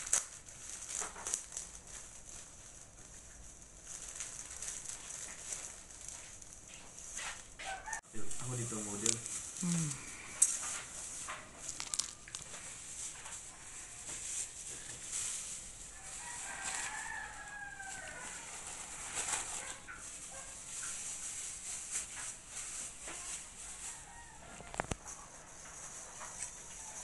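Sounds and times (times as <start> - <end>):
plastic bags crinkling: 0.0 - 27.0
rooster crowing: 7.6 - 8.2, 15.9 - 19.0, 23.8 - 25.0.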